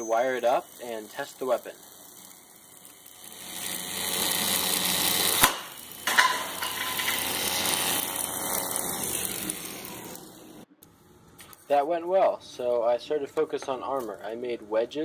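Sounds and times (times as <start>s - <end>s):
motor high whine: 0.0s - 11.4s.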